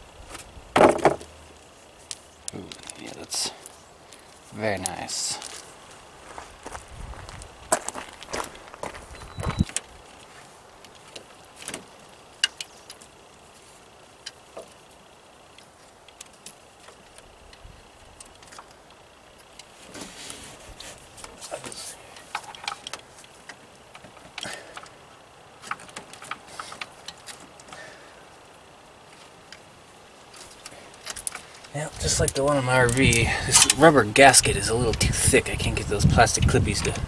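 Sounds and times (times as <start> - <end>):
clicks and rattles of plastic parts: 21.2 - 25.0, 25.6 - 27.8, 30.3 - 33.8.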